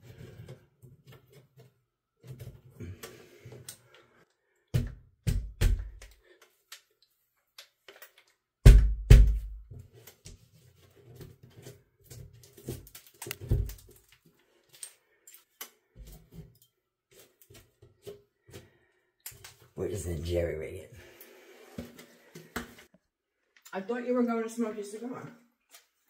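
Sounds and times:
drywall pieces knocking and thumping: 0:04.7 - 0:06.2, 0:08.6 - 0:10.4, 0:11.0 - 0:14.1.

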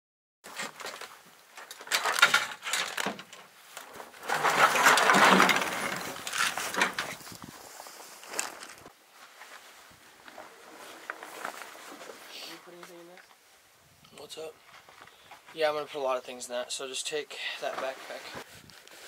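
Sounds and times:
plastic bag and backpack rustling: 0:00.5 - 0:13.2, 0:17.6 - 0:19.0.

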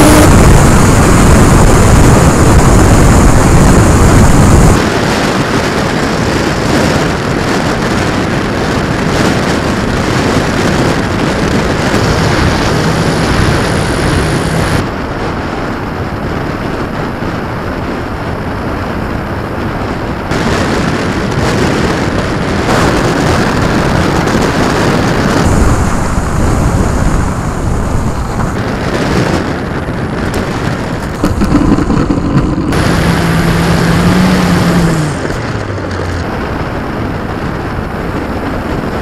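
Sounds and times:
wind rushing over microphone: 0:00.0 - 0:39.0
model plane motor and propeller hum: 0:05.6 - 0:14.8.

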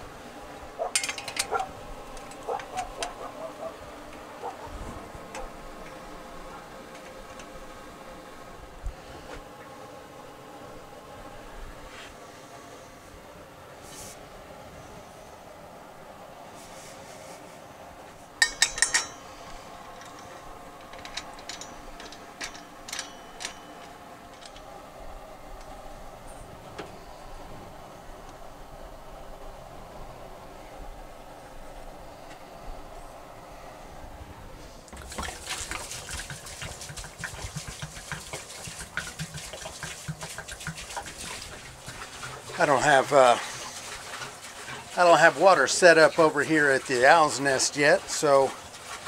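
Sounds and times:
metal lid clinking on pot: 0:18.4 - 0:19.4
water glugging and splashing: 0:34.9 - 0:49.0.

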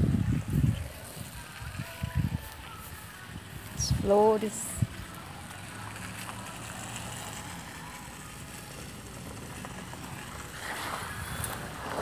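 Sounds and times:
wind on microphone: 0:00.0 - 0:05.1.

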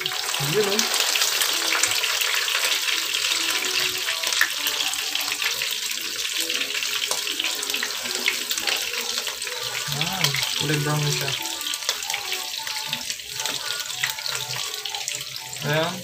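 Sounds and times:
oil sizzling and crackling: 0:00.0 - 0:16.0.

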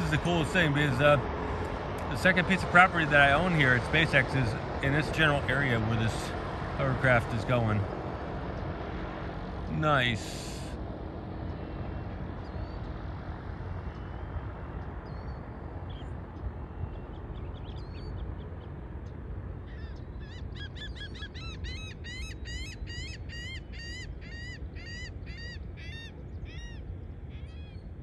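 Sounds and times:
flock of birds calling: 0:00.0 - 0:07.9
steady low rumble: 0:00.0 - 0:22.0.

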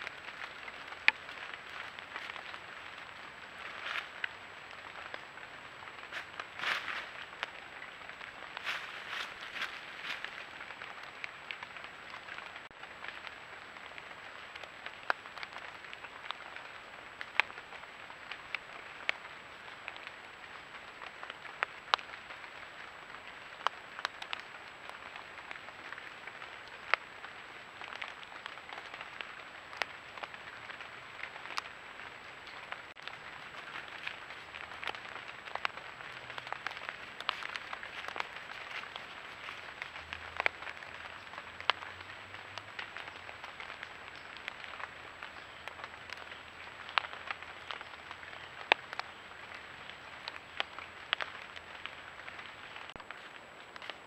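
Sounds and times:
sharp clicks and crackles: 0:27.8 - 0:54.0.

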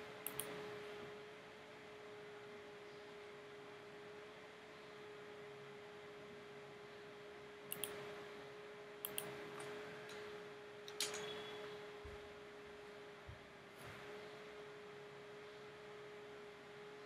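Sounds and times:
faint steady hum: 0:00.0 - 0:17.0
mouse buttons clicking: 0:00.2 - 0:00.7, 0:07.7 - 0:08.1, 0:09.0 - 0:10.2, 0:10.9 - 0:11.6.

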